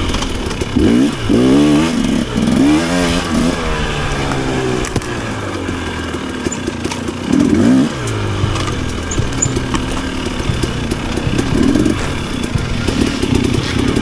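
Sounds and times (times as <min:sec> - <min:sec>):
bike knocks and rattles: 0:00.0 - 0:14.0
dirt bike engine revving: 0:00.0 - 0:14.0.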